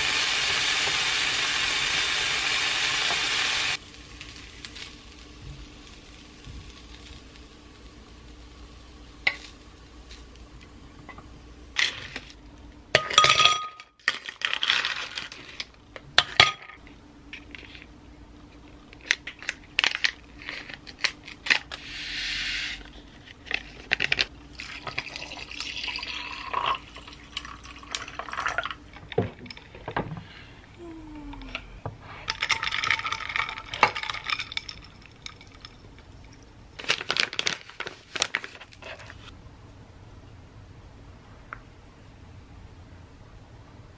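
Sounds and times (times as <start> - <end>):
liquid poured over ice: 24.5 - 28.8.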